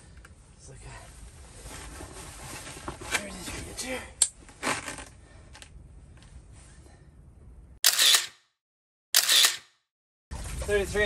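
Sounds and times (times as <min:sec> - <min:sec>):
camera shutter snap: 0:07.8 - 0:08.4, 0:09.2 - 0:09.8.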